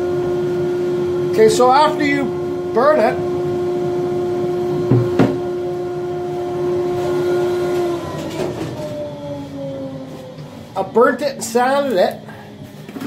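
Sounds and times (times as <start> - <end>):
electric motor humming and winding down: 0.0 - 13.0
sharp knocks: 4.9 - 5.4.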